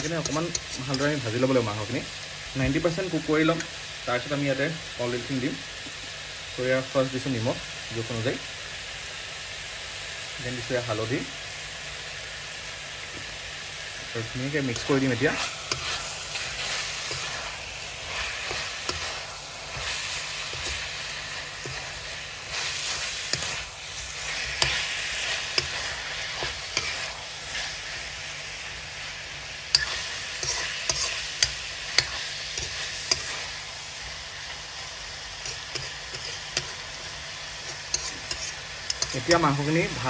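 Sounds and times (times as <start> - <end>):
spoon scraping pan: 0.0 - 1.2, 14.6 - 28.0, 29.7 - 33.7, 35.3 - 40.0
chicken sizzling in oil: 0.0 - 40.0.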